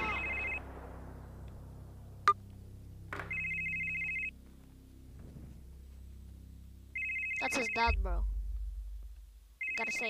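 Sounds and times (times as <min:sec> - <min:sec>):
smartphone ringing two-tone trill: 0:00.0 - 0:00.6, 0:03.3 - 0:04.3, 0:07.0 - 0:07.9, 0:09.6 - 0:10.0.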